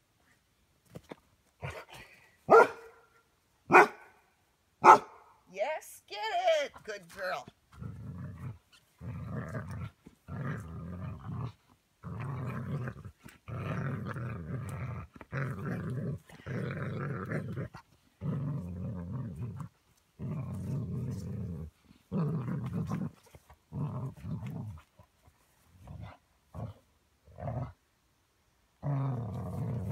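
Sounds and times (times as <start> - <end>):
dog growling in play: 7.7 - 27.8, 28.8 - 29.9.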